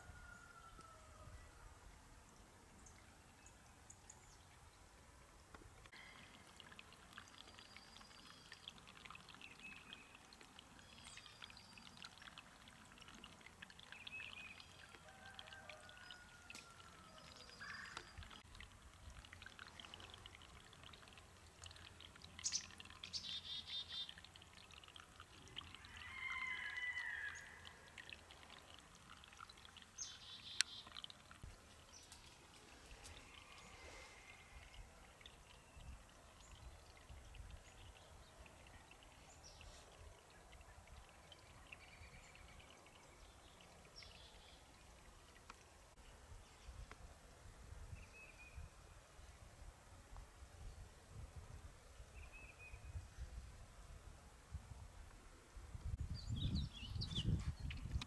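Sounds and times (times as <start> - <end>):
brook trickling: 2.1 - 58.0.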